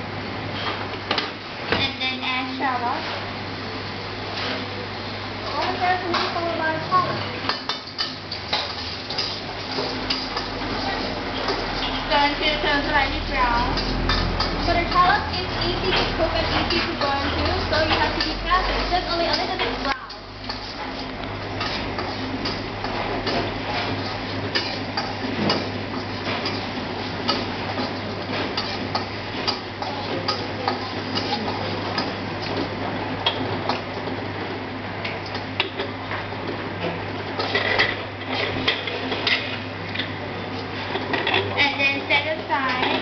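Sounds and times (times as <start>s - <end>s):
steady low hum: 0.0s - 43.0s
shallots frying in oil: 5.3s - 36.5s
spatula scraping and tapping wok: 7.5s - 33.9s.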